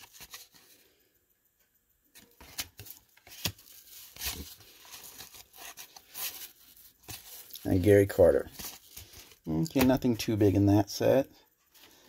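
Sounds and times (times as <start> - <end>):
cards flicking and rustling: 0.0 - 0.8, 2.1 - 10.3.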